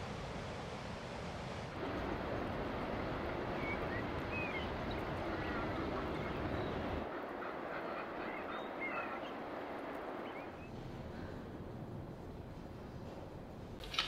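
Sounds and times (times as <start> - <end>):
high bird calls: 3.5 - 10.7.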